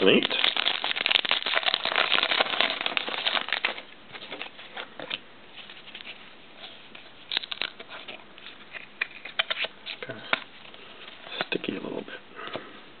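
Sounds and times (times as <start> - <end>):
foil wrapper crinkling: 0.0 - 4.5, 7.3 - 10.0
cards rustling and clicking: 0.0 - 6.2, 7.3 - 11.6.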